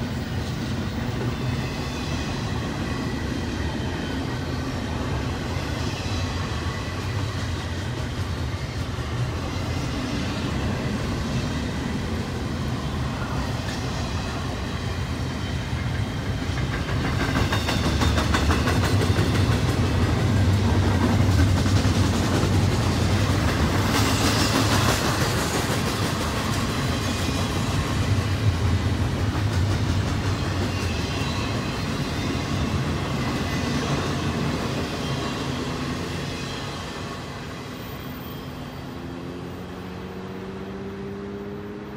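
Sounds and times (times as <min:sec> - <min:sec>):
freight train cars rolling: 0:00.0 - 0:40.4
wheels clicking over rail joints: 0:15.9 - 0:31.0.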